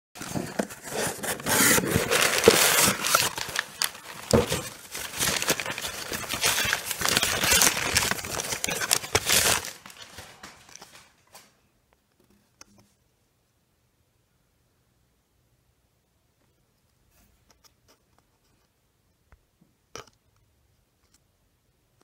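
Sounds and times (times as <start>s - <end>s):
paper and cardboard rustling: 0.2s - 11.6s.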